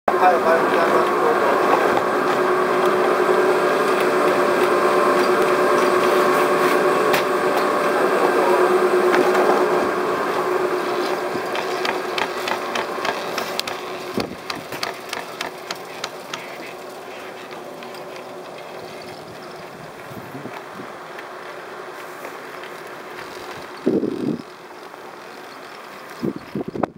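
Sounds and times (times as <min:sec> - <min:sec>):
lift machinery humming: 0:00.1 - 0:26.9
cable clicking over rollers: 0:11.4 - 0:26.6.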